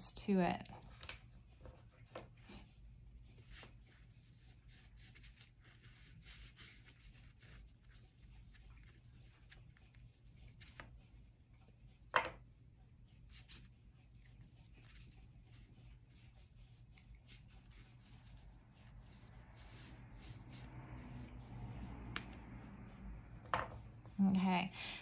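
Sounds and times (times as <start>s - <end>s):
oil pastel rubbing on paper: 3.4s - 9.7s, 14.8s - 22.6s.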